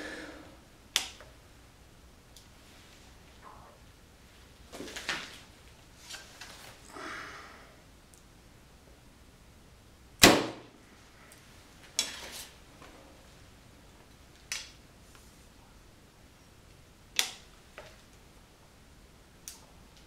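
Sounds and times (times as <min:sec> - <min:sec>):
soft rustling: 0:02.5 - 0:03.4, 0:04.2 - 0:06.9.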